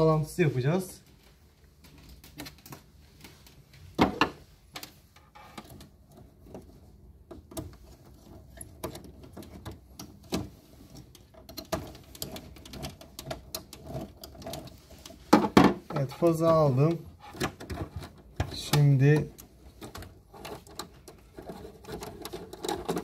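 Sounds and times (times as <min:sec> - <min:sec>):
wires and plastic parts rattling: 0:01.0 - 0:23.0.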